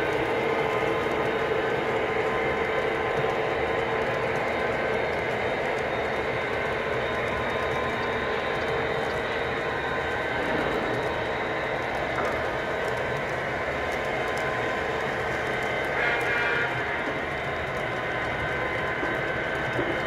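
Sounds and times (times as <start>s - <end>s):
faint clicks of train wheels: 0.0s - 20.0s
model train rolling rumble: 0.0s - 20.0s.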